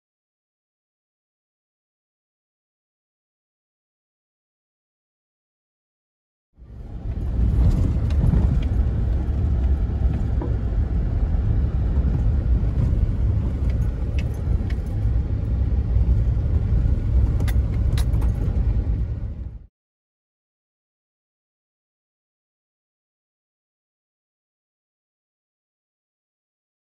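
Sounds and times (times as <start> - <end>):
tyres rumbling on dirt road: 6.6 - 19.7
small clicks and rattles: 17.1 - 18.7.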